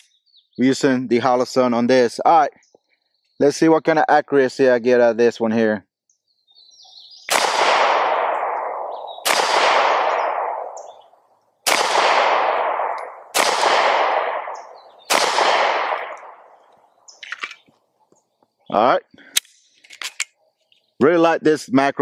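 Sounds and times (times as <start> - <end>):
pistol shots with echo: 7.2 - 16.6.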